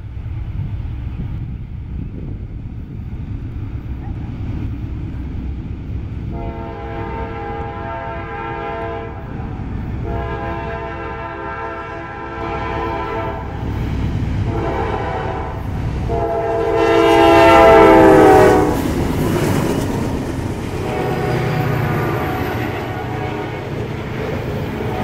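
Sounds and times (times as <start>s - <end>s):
locomotive air horn blasts: 6.3s - 9.3s, 10.0s - 13.6s, 14.4s - 18.8s, 20.8s - 23.8s.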